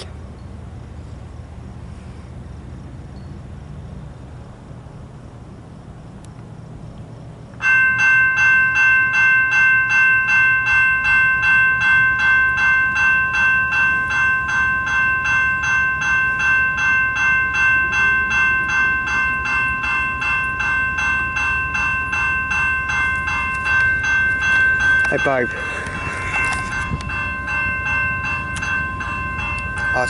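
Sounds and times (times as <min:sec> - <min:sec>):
crossing warning bell ringing: 0:03.0 - 0:03.6, 0:07.6 - 0:30.0
low rumble: 0:22.2 - 0:30.0.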